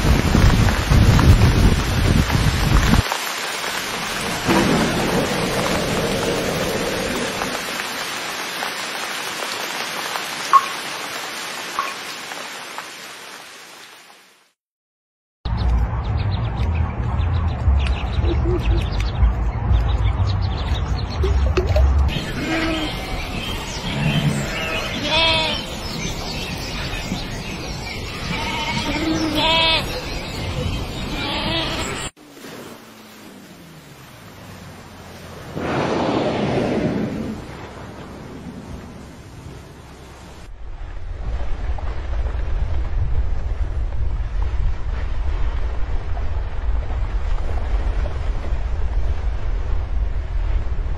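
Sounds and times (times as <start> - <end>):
steady rain falling: 0.0 - 14.6, 21.3 - 50.9
low roll of thunder: 4.2 - 7.8, 35.6 - 39.7, 40.5 - 50.9
sheep bleating: 24.7 - 25.6, 28.1 - 29.9, 31.2 - 32.0.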